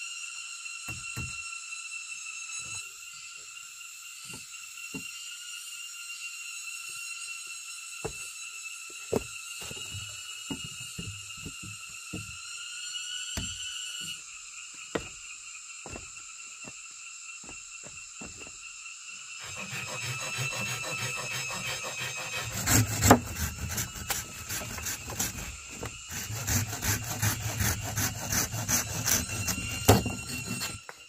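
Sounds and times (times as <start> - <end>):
wood knocks and thuds: 0.9 - 1.4, 9.1 - 12.4, 13.4 - 13.6, 14.9 - 15.2, 15.8 - 16.8, 17.4 - 18.6, 22.7 - 23.4
hand saw cutting wood: 9.1 - 12.4, 13.3 - 14.2, 19.3 - 31.0.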